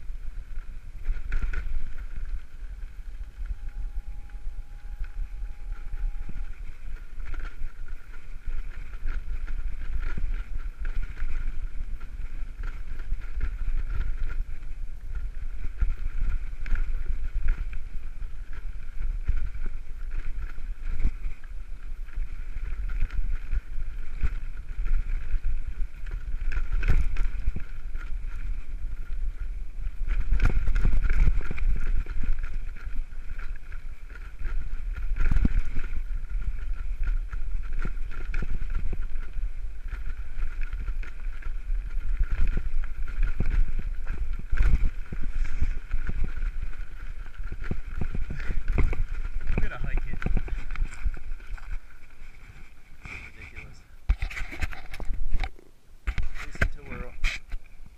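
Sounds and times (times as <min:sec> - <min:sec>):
bike rattling and knocking: 0:00.0 - 0:53.5
wind rumbling on microphone: 0:00.0 - 0:57.9
tyres crunching over stones: 0:30.2 - 0:55.6.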